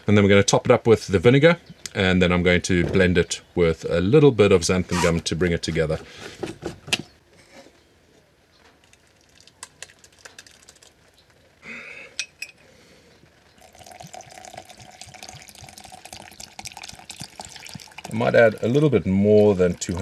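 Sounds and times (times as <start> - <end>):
liquid pouring into plastic cup: 8.8 - 11.1, 13.6 - 20.0
thick puree pouring into pot: 8.8 - 11.2, 13.6 - 20.0.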